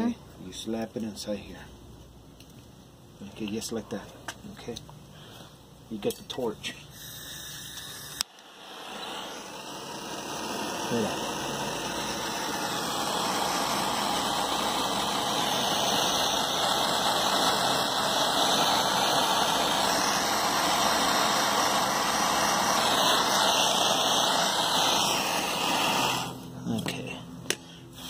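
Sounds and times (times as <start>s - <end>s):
torch flame hissing: 6.8s - 26.5s.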